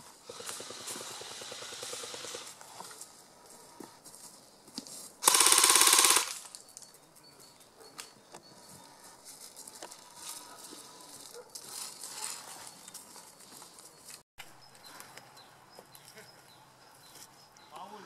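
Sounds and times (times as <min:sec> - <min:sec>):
airsoft rifle full-auto burst: 0:00.2 - 0:02.5, 0:05.2 - 0:06.5.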